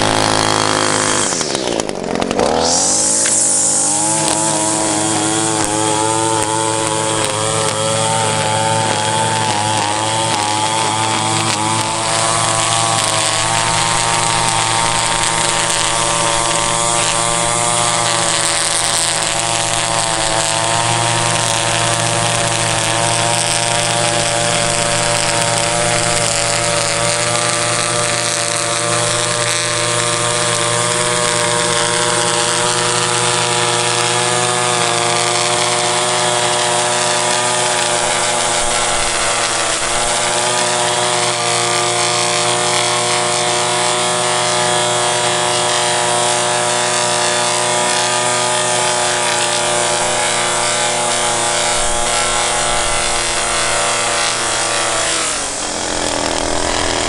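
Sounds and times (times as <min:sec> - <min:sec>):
string trimmer running: 0:00.0 - 0:57.0.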